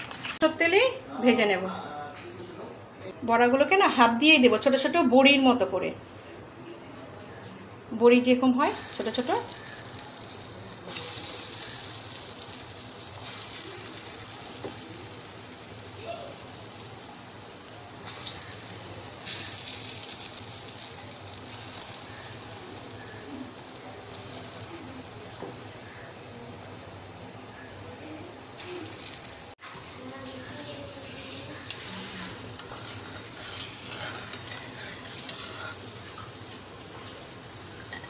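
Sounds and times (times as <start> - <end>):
oil sizzling in a wok: 8.6 - 38.0.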